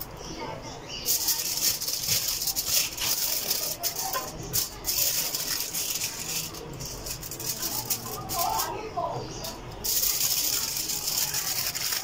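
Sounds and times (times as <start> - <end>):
foil crinkling and rustling: 1.0 - 12.0.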